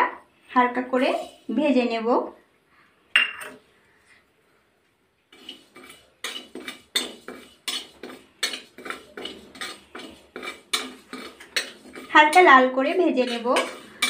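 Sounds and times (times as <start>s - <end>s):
metal spatula scraping seeds in pan: 0.9s - 1.7s, 5.3s - 14.0s.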